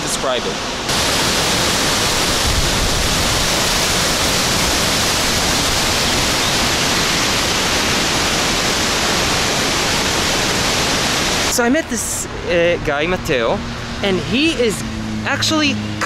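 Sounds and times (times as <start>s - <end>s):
waterfall rushing: 0.0s - 11.9s.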